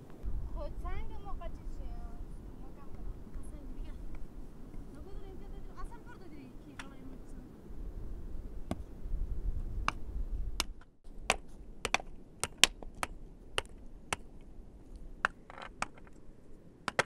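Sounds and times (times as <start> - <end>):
low rumble: 0.0 - 6.6
stones clacking together: 10.6 - 17.0.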